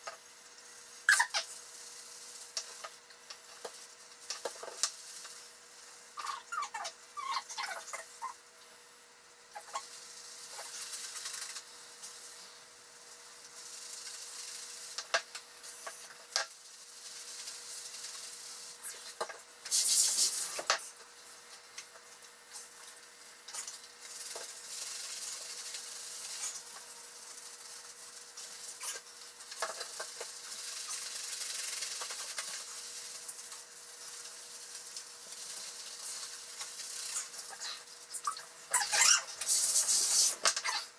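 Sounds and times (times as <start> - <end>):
soapy rubbing of wet fur: 9.6 - 15.0, 15.6 - 20.6, 22.0 - 40.4.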